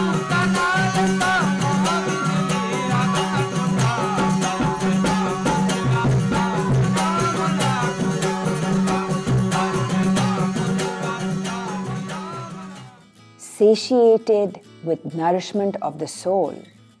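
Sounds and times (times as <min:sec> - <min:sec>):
hand drum beating: 0:00.0 - 0:12.9
plucked lute drone: 0:00.0 - 0:12.9
man singing: 0:00.0 - 0:13.0.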